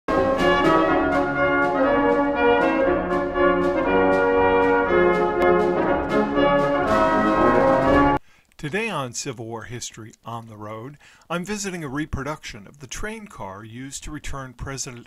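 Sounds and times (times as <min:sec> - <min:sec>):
brass led orchestral music: 0:00.1 - 0:08.2.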